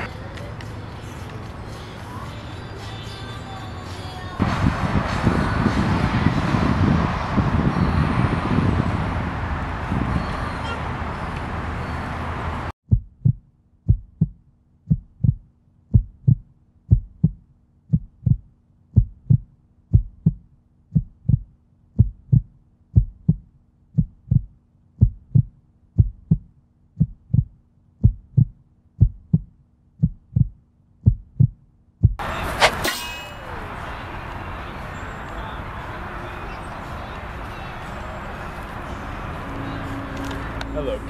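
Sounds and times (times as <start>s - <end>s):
outdoor background noise: 0.0s - 12.7s, 13.3s - 41.0s
heartbeat thumps: 12.9s - 32.2s.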